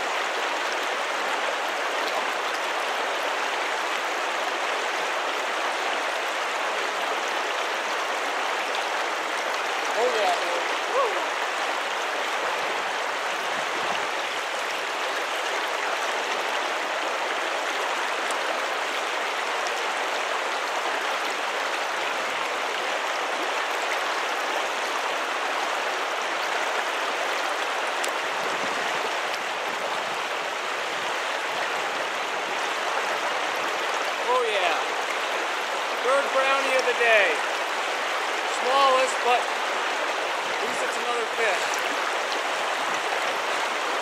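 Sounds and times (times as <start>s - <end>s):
creek water rushing: 0.0s - 44.0s.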